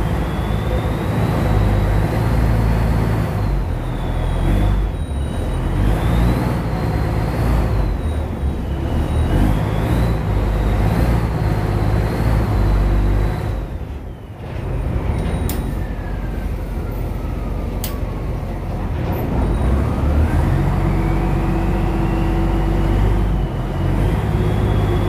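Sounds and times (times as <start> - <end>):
boat engine rumbling: 13.6 - 25.0.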